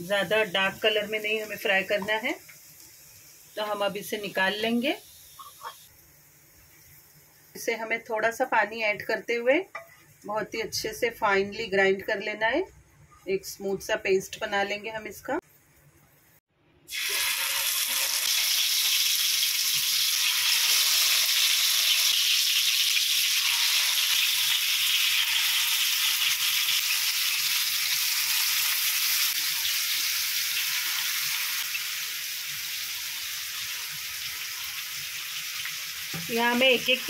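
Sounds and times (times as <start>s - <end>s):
chicken sizzling in hot oil: 0.0s - 8.0s, 16.9s - 37.0s.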